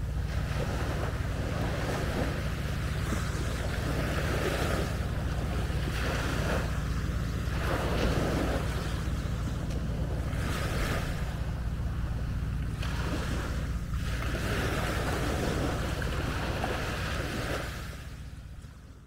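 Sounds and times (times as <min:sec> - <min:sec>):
small waves washing on shore: 0:00.0 - 0:19.0
wind rumbling on microphone: 0:00.0 - 0:19.0.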